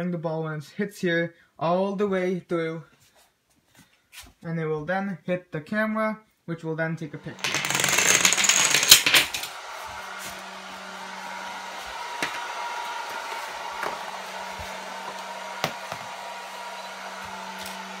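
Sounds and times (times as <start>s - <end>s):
hair dryer running: 8.5s - 18.0s.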